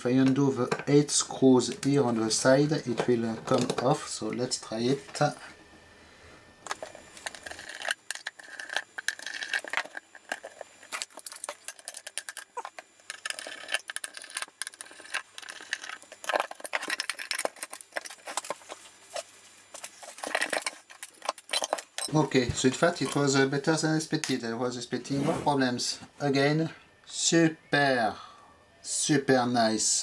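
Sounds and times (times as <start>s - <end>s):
screwdriver turning metal screws: 6.7s - 18.6s, 20.1s - 22.1s
small metallic clicks and rattles: 6.7s - 18.8s, 19.8s - 22.2s.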